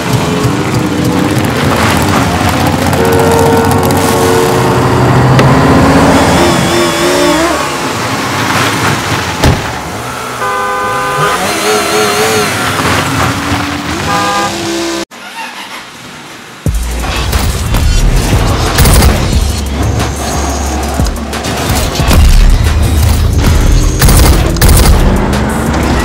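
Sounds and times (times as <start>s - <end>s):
car horns honking: 2.9s - 7.5s, 9.8s - 15.0s.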